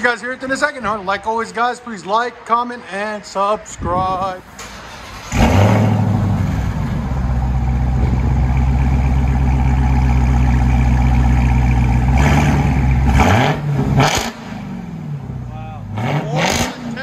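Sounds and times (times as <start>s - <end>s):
car engine idling: 4.6s - 17.0s.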